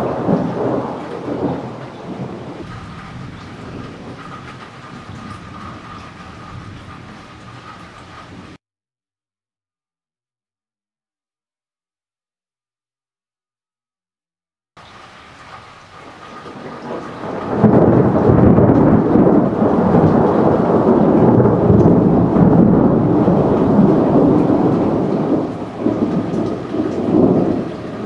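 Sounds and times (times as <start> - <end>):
thunder rumbling: 0.0 - 8.6, 15.3 - 28.0.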